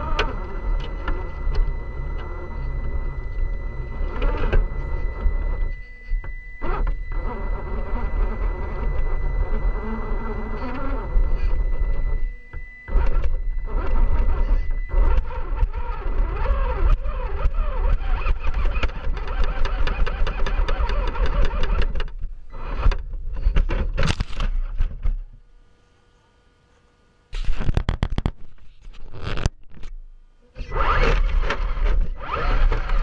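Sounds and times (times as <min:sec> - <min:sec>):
toy car motor whining: 0:00.0 - 0:23.0, 0:30.6 - 0:33.0.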